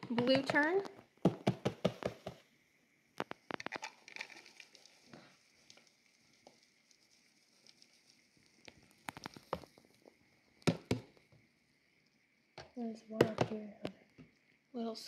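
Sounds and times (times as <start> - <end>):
roaches pattering in plastic cup: 3.2 - 11.5.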